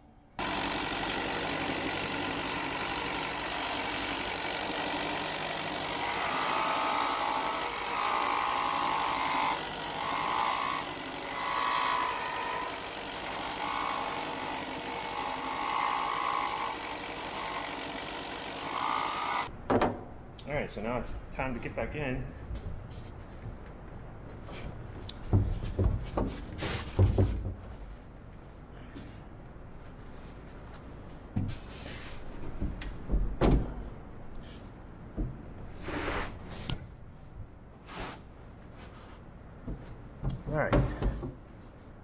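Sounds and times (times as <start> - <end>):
disc sander sanding wood: 0.4 - 19.5.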